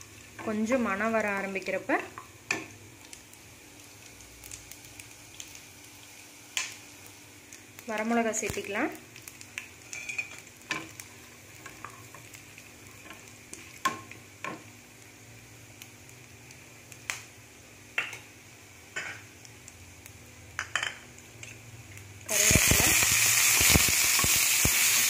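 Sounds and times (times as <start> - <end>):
spices sizzling in oil: 0.0 - 25.0
spatula scraping a pan: 9.9 - 10.4.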